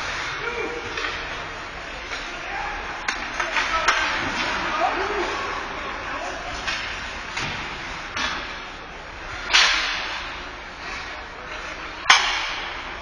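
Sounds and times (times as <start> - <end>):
hockey stick and puck cracks: 3.0 - 4.6, 12.0 - 12.9.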